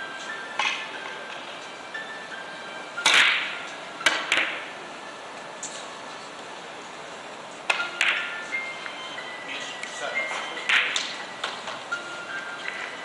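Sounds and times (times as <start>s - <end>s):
billiard balls clicking: 3.0s - 4.7s, 7.6s - 9.0s, 10.6s - 11.8s.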